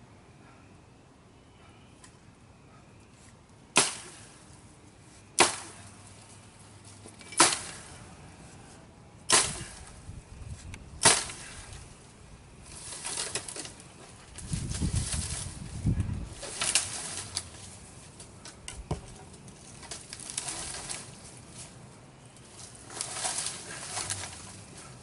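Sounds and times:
brush crackling and rustling: 0:03.1 - 0:25.0
blade chopping into branches: 0:03.7 - 0:04.4, 0:05.4 - 0:06.2, 0:07.2 - 0:08.0, 0:09.3 - 0:10.0, 0:10.9 - 0:11.9, 0:12.7 - 0:15.6, 0:16.3 - 0:21.8, 0:22.4 - 0:25.0.

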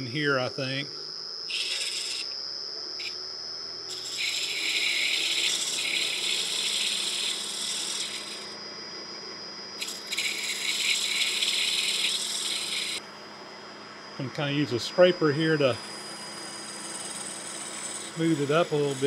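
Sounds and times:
wood lathe running: 0:01.5 - 0:02.2, 0:03.9 - 0:08.6, 0:09.8 - 0:13.0, 0:15.4 - 0:19.0
turning tool scraping wood: 0:01.5 - 0:02.3, 0:03.9 - 0:08.6, 0:09.8 - 0:13.0, 0:15.8 - 0:19.0.

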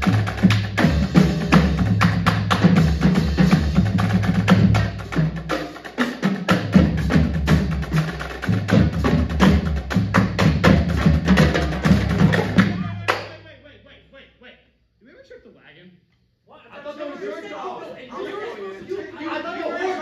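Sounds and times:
snare drum: 0:00.0 - 0:13.3
marching bass drums: 0:00.0 - 0:13.4
tenor drums: 0:00.0 - 0:13.4.

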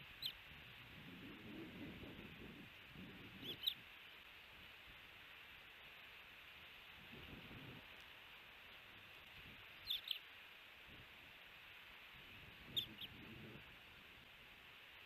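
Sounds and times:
osprey chirping: 0:00.0 - 0:00.4, 0:03.4 - 0:03.8, 0:09.8 - 0:10.3, 0:12.6 - 0:13.5.

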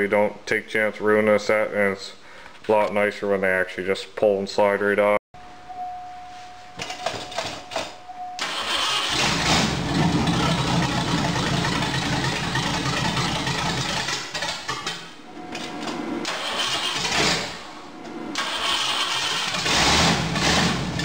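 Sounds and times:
car engine starting and running loud: 0:08.4 - 0:21.0.

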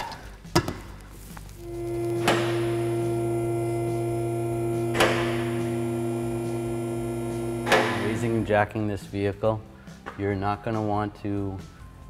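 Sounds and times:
hydraulic pump motor humming: 0:01.6 - 0:08.5.

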